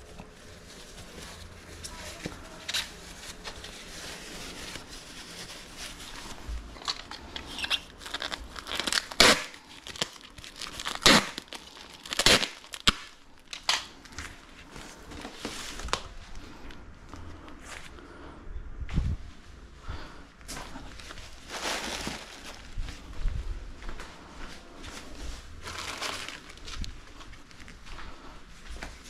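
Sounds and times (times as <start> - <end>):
plastic packing material crinkling: 0.0 - 16.7, 20.6 - 23.1, 24.8 - 27.8.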